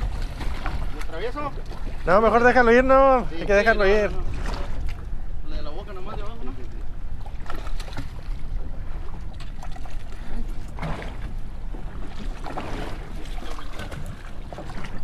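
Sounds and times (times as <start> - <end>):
water splashing and trickling: 0.0 - 5.1, 6.2 - 15.0.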